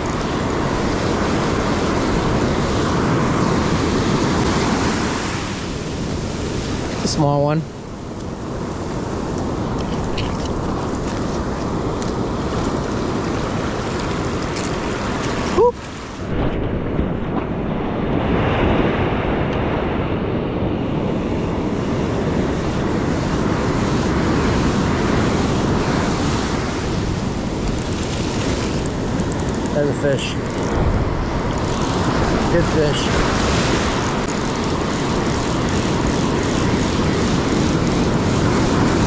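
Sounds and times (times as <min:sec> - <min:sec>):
ocean surf breaking: 0:00.0 - 0:39.0
wind on microphone: 0:00.0 - 0:39.0.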